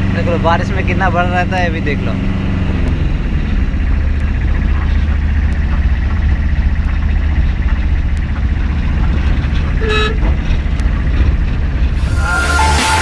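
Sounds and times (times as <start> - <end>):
vehicle rumble with road noise: 0.0 - 13.0
short high beeping tone: 9.8 - 10.2.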